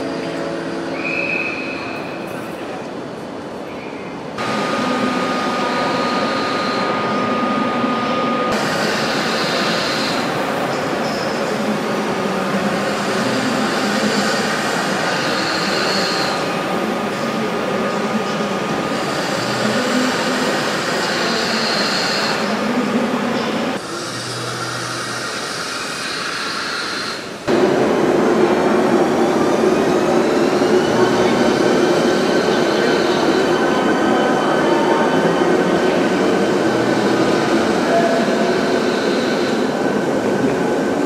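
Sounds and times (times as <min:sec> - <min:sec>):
train rumble and hiss: 0:00.0 - 0:41.0.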